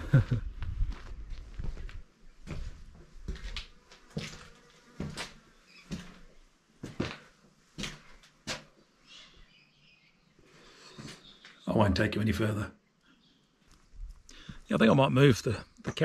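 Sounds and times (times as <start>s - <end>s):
crunching footsteps: 0.6s - 8.8s.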